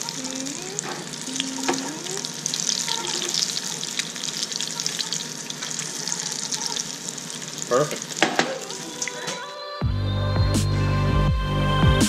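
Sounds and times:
fish frying in hot oil: 0.0 - 9.2.

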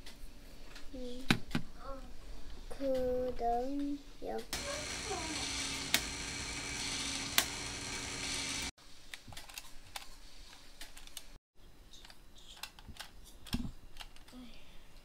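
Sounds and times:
plastic toy clicking and rattling: 9.1 - 10.1, 12.0 - 14.4.

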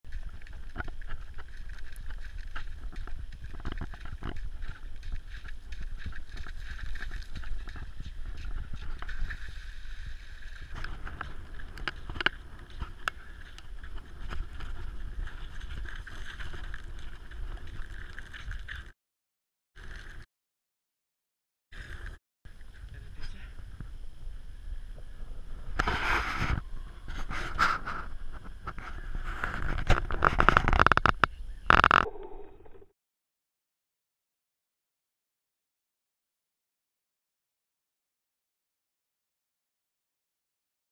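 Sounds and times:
wind rumble on microphone: 0.1 - 18.9, 21.8 - 32.9.

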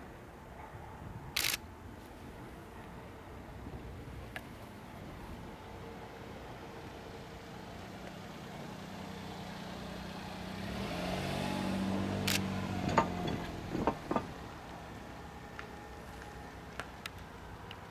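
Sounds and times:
distant diesel railcar engine hum: 0.0 - 17.9.

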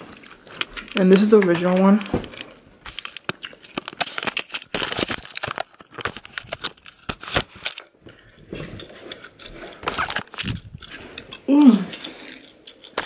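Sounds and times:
crinkling and rustling: 0.0 - 13.0.

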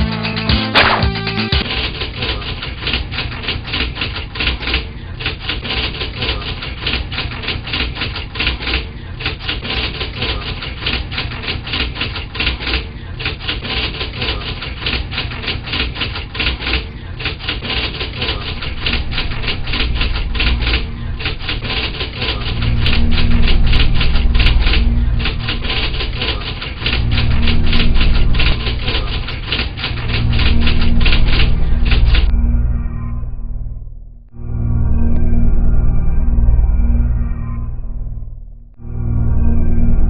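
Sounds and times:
typewriter keys clattering: 0.0 - 32.3
low steady hum: 16.8 - 40.0.

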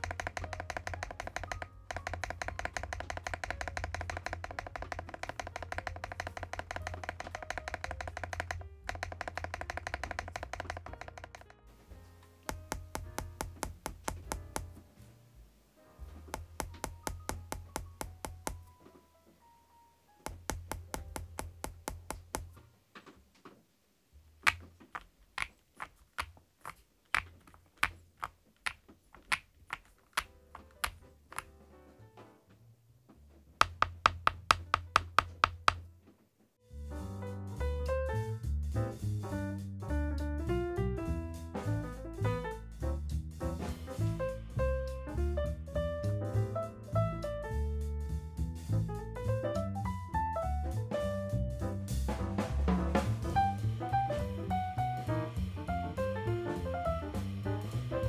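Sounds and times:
mechanical keyboard typing: 0.0 - 11.7, 12.5 - 14.7, 16.3 - 18.7, 20.3 - 22.6, 24.5 - 31.5, 33.6 - 35.8.

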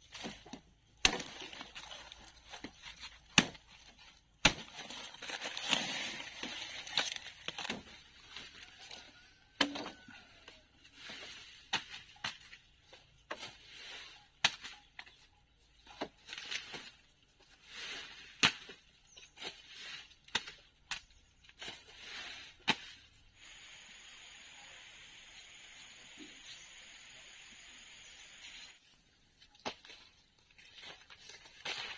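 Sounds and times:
rustling and tearing: 1.1 - 9.0
steady hiss: 23.4 - 28.8.

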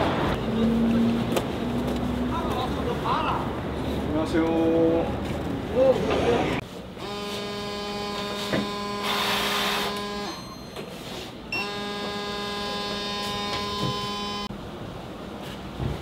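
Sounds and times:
short high beep: 10.2 - 11.9
breathalyzer buzzing: 11.6 - 14.5.

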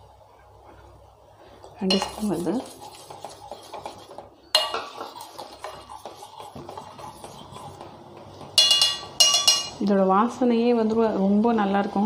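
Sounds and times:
spoon clinking steel pot: 1.8 - 2.4, 4.5 - 6.9, 8.6 - 9.8.

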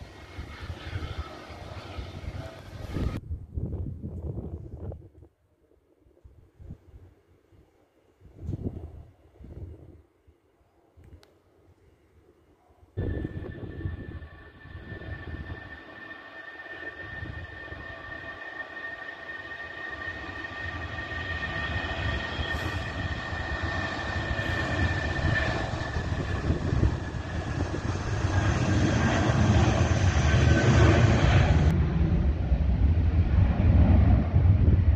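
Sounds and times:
jet engines at takeoff thrust: 0.0 - 3.2, 13.0 - 34.9.

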